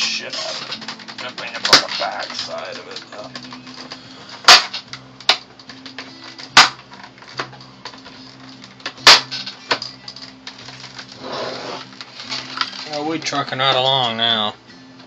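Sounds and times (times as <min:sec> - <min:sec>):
plastic clips snapping: 0:00.0 - 0:11.2.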